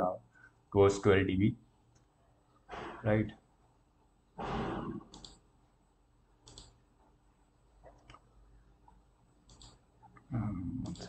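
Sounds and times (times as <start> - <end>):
computer mouse clicks: 5.1 - 5.4, 6.4 - 6.8, 7.8 - 11.0.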